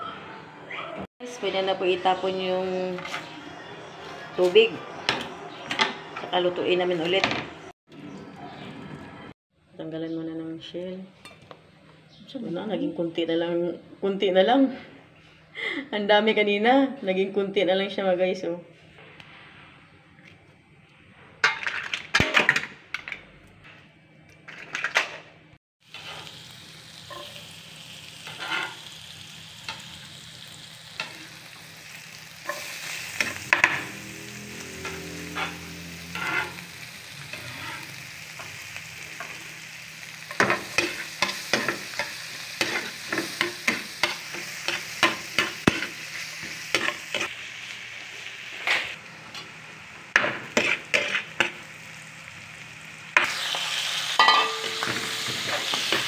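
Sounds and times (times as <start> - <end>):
garlic and onion sizzling in butter: 25.8 - 56.0
stirring clicks and scrapes in pan: 50.2 - 51.6.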